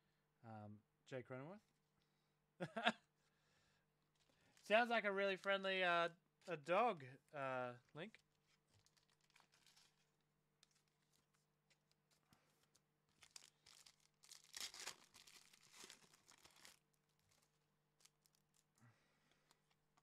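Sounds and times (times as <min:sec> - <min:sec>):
card pack wrapper tearing: 0:08.8 - 0:10.1, 0:13.1 - 0:16.8.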